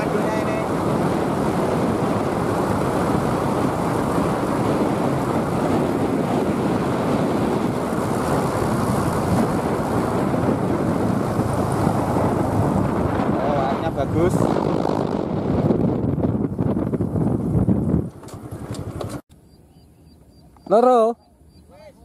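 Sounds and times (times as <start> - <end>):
vehicle running noise: 0.0 - 15.9
wind buffeting microphone: 0.0 - 20.4.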